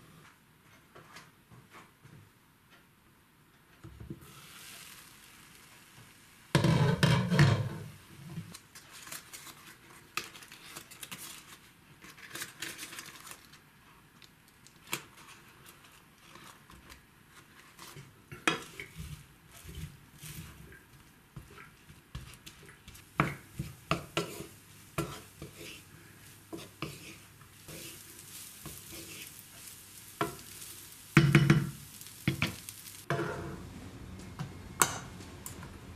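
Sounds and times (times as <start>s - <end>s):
wooden spatula scraping rice: 15.0s - 33.6s.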